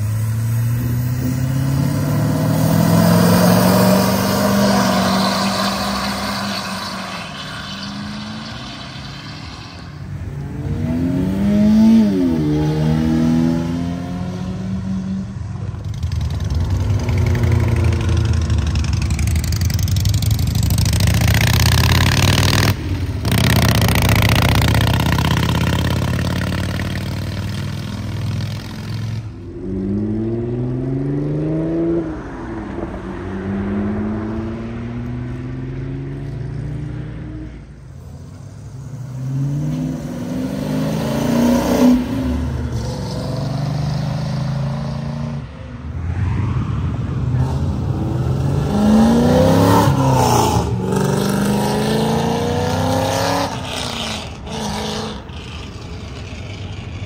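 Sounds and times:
cars accelerating away: 0.0 - 15.3, 39.1 - 45.4, 46.0 - 57.0.

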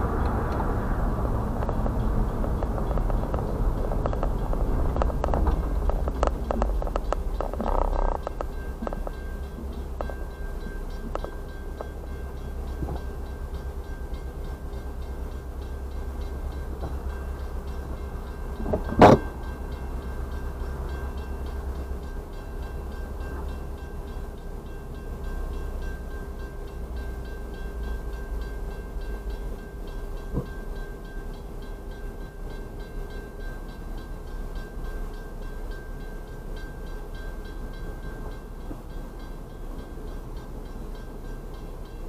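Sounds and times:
low rumble: 0.0 - 11.2
crossing warning bell ringing: 0.0 - 42.0.

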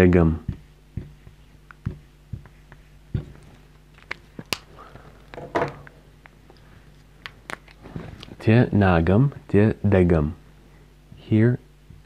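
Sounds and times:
marker tapping whiteboard: 0.4 - 3.4.

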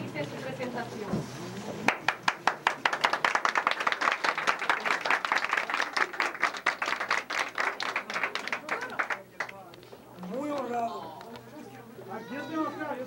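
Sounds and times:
people applauding: 1.8 - 9.8.

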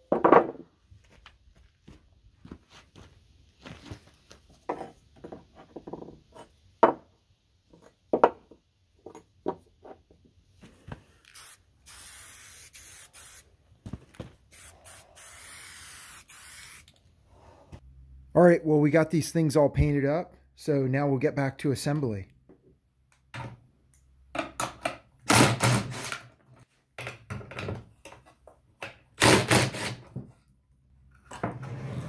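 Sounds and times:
aerosol spray can hissing: 11.3 - 13.5, 14.5 - 17.0.

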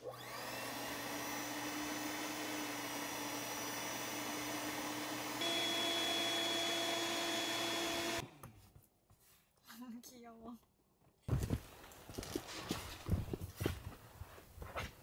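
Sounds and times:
electric air pump running: 0.0 - 8.3.

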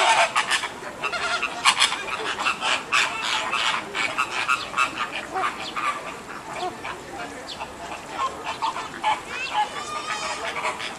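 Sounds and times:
flamingo flock calling: 0.0 - 10.9.

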